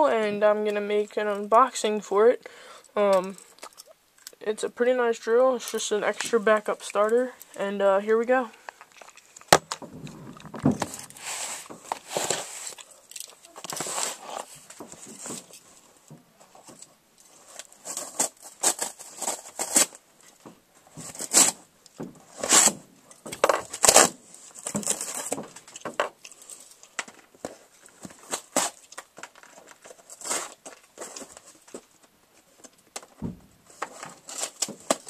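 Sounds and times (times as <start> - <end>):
cardboard packaging tearing: 9.0 - 15.7, 16.6 - 20.1, 20.9 - 32.0, 32.6 - 35.0
knocks: 33.2 - 33.6.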